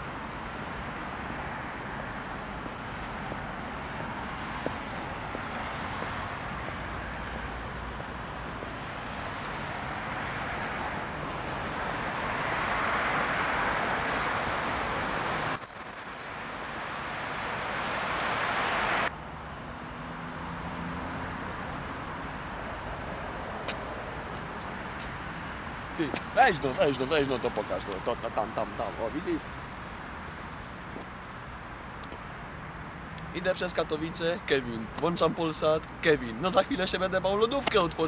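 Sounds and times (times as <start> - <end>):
road traffic noise: 0.0 - 38.0
high thin squeal: 9.8 - 13.1, 15.6 - 16.6.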